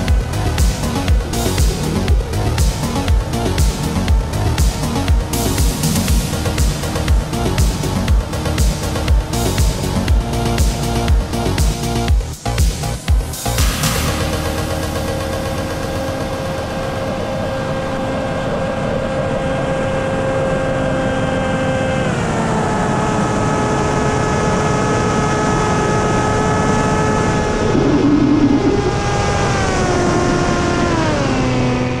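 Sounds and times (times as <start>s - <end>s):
electric motor and propeller whining: 0.0s - 32.0s
wind rushing: 27.2s - 30.2s.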